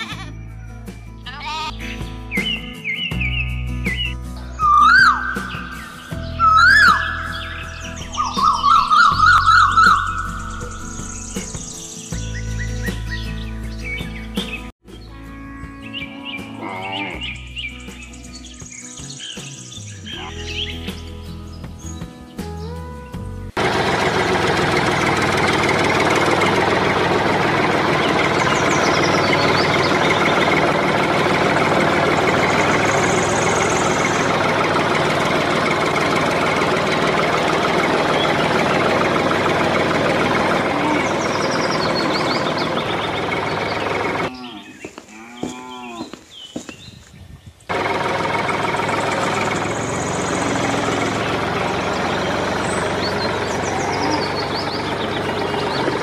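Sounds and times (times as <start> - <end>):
tractor engine running: 3.8 - 11.9, 23.5 - 44.4, 47.7 - 56.0
cow mooing: 15.4 - 17.4, 40.6 - 41.3, 44.3 - 46.2, 53.7 - 54.5.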